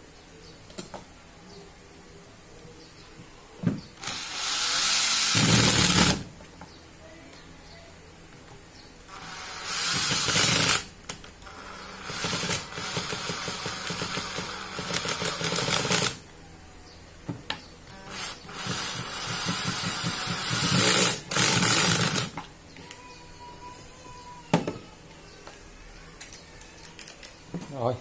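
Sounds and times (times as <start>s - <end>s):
cordless drill whirring: 4.0s - 6.2s, 9.1s - 16.2s, 18.1s - 22.4s.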